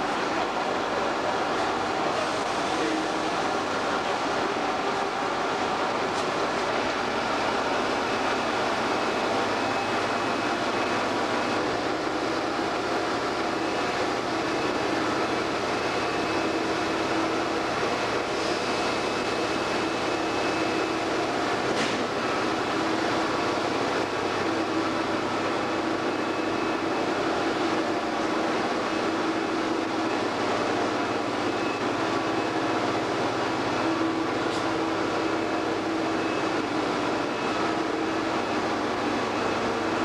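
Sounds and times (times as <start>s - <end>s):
diesel locomotive engine idling: 0.0s - 40.0s.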